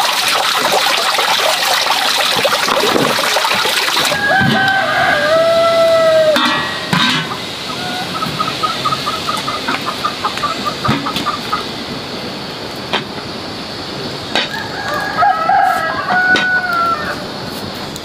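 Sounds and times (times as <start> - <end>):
rooster crowing: 4.0 - 10.6, 14.4 - 17.4
chickens clucking: 4.0 - 12.0.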